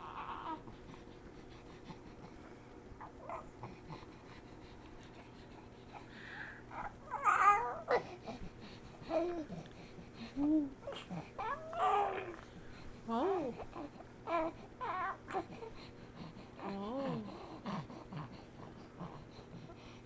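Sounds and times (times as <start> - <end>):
baby cooing: 0.0 - 0.7, 6.7 - 8.1, 10.6 - 12.4, 13.3 - 15.6.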